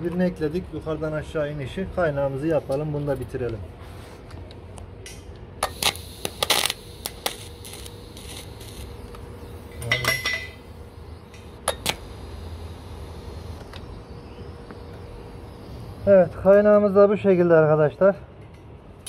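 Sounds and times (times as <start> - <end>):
faint steady background noise: 0.0 - 19.0.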